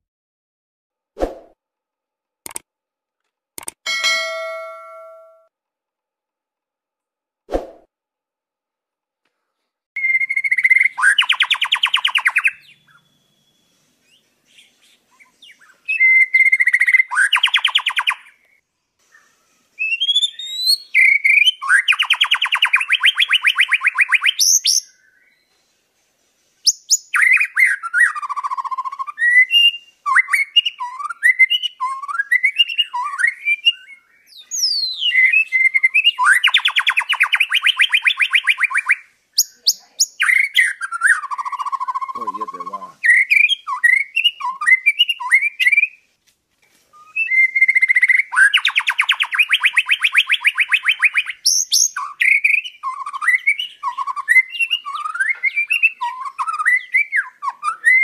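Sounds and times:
bird whistling song: 10.0s - 25.6s, 26.6s - 46.1s, 46.9s - 58.0s.

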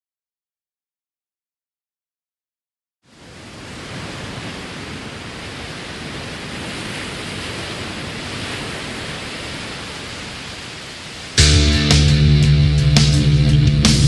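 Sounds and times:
steady rushing noise: 3.2s - 14.0s
heavy rock band: 11.4s - 14.0s.

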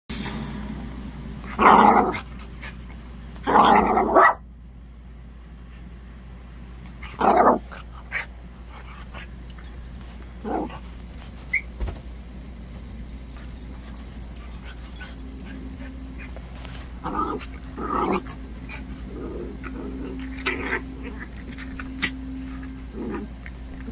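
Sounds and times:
dogs barking: 3.6s - 4.4s.

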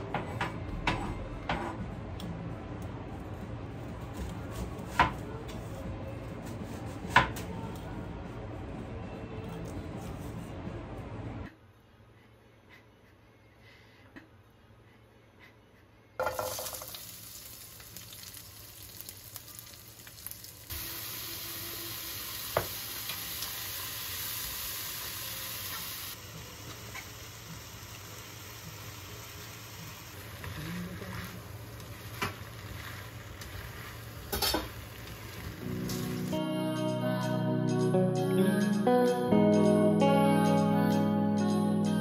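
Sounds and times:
food sizzling in a frying pan: 16.2s - 36.4s.

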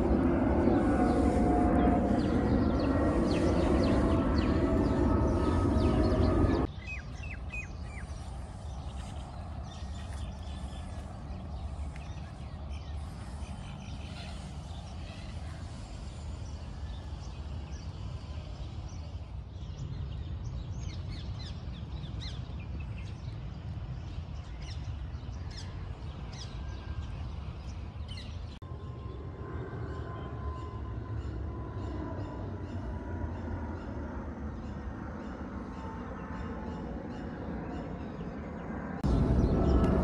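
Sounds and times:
small birds chirping: 0.0s - 28.6s
low outdoor rumble: 0.0s - 40.0s.

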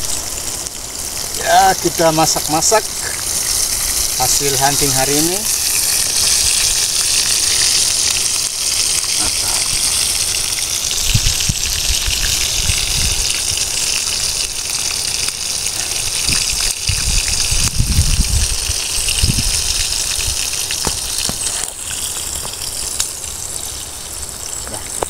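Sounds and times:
meat sizzling in a pan: 0.0s - 25.0s
sharp pops: 20.6s - 23.1s.

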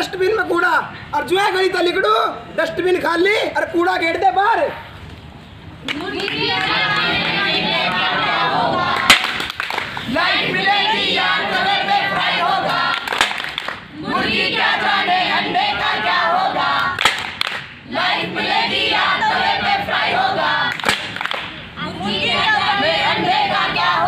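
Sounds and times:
group singing in unison: 6.0s - 9.3s, 10.1s - 17.2s, 17.8s - 21.1s, 21.8s - 24.0s.

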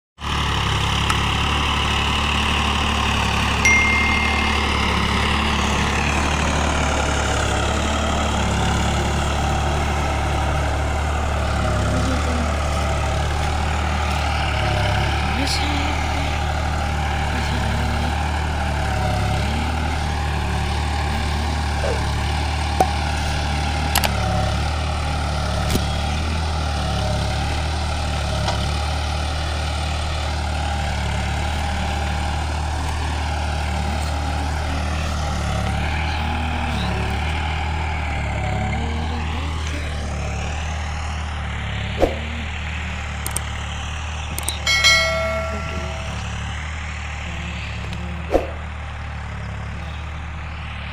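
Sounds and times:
tractor diesel engine under load: 0.2s - 50.9s
short chime: 3.6s - 7.0s, 44.6s - 46.6s.

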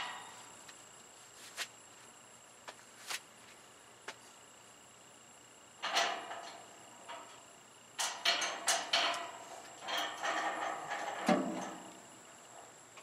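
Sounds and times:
knocks and scrapes on metal frame: 5.8s - 7.4s, 8.0s - 12.0s.

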